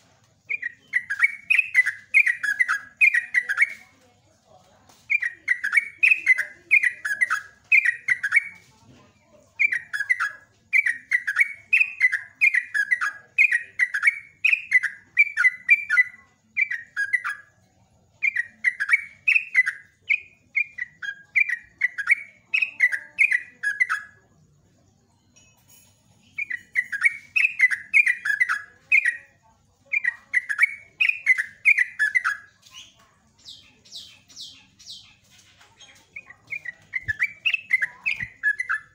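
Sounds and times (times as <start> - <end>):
soft high bird chirps: 0.0 - 38.9
bird singing rapid bubbly song: 0.5 - 3.8, 18.2 - 24.2, 29.9 - 38.9.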